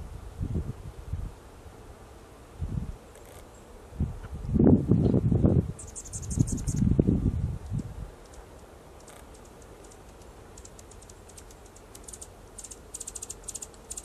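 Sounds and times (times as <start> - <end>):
faint low wind rumble: 0.0 - 13.3
hummingbird ticking chips: 5.8 - 6.8, 7.6 - 14.0.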